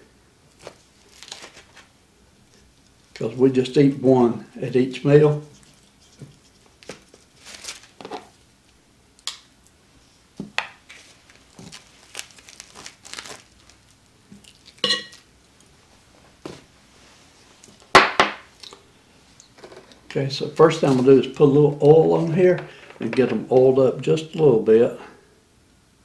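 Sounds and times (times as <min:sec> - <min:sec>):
plastic packaging crinkling: 0:00.5 - 0:01.9, 0:06.8 - 0:08.3, 0:10.8 - 0:15.2.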